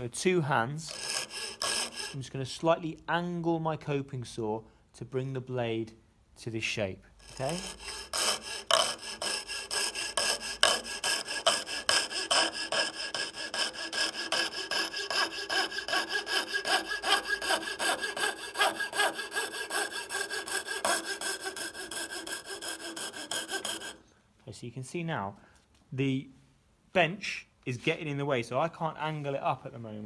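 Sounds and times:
coping saw cutting: 0:00.8 - 0:02.4, 0:07.2 - 0:24.0.

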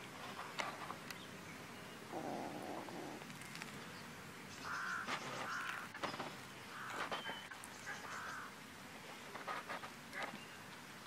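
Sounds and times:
harsh drawn-out animal calls: 0:02.1 - 0:03.3
kitten chewing with crunches: 0:02.2 - 0:03.9.

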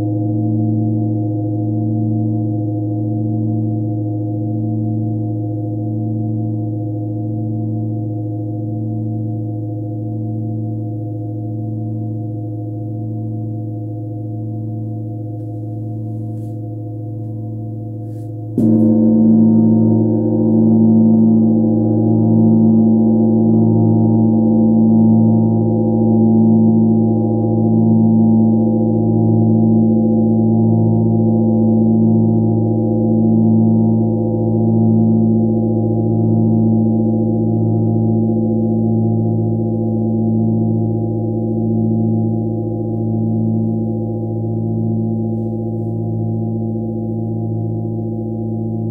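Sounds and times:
metal bell ringing with low hum: 0:00.0 - 0:48.9
mallet striking metal bell: 0:18.1 - 0:24.1.

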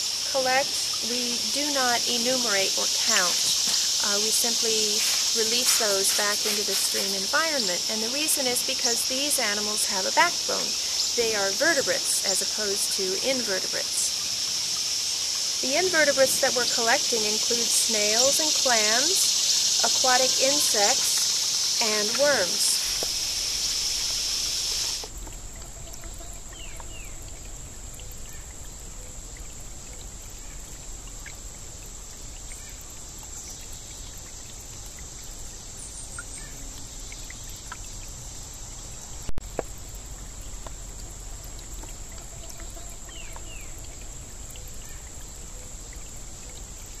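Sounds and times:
faint steady hiss: 0:00.0 - 0:47.0
loud rushing hiss: 0:03.0 - 0:07.4, 0:18.6 - 0:25.1.

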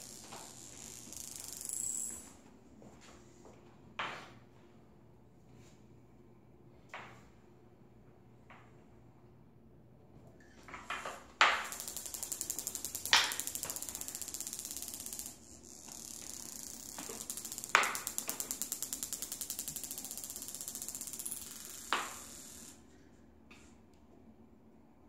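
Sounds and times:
marble rolling on tiles: 0:00.0 - 0:02.4, 0:10.6 - 0:22.8
marble knocking on tiles: 0:10.7 - 0:22.4.

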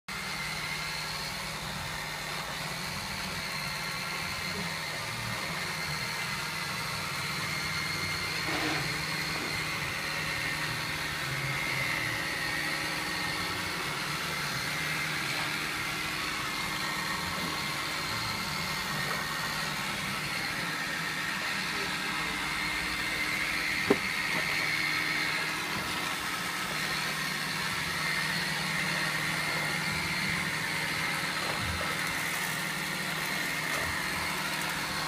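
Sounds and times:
high motor whine: 0:00.1 - 0:35.0
robot vacuum cleaner whirring: 0:00.1 - 0:35.0.

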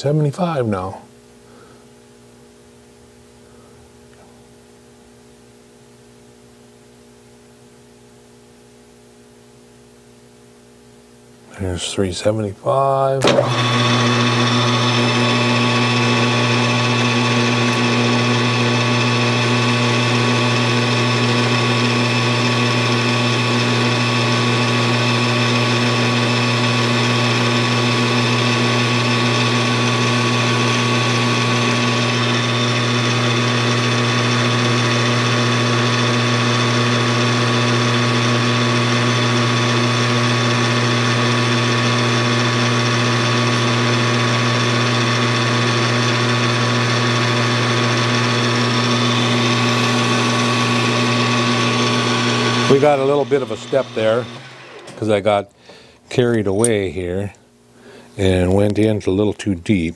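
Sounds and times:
metal lathe humming: 0:13.2 - 0:57.0.

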